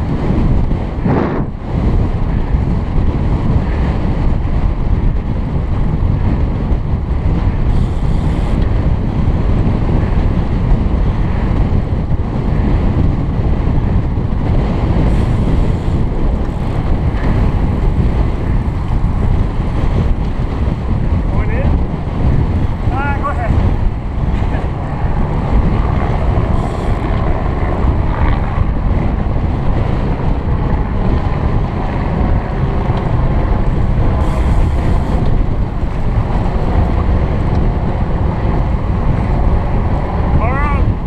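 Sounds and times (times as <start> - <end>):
wind buffeting a microphone: 0.0 - 41.0.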